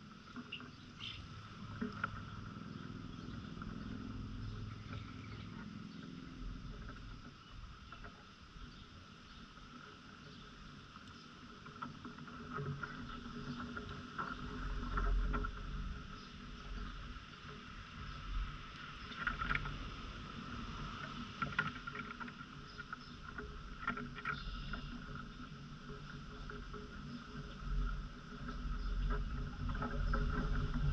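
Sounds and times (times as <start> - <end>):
wind rumble on microphone: 0.0 - 30.9
bird chirps: 0.5 - 1.3, 2.6 - 6.2, 24.3 - 24.9.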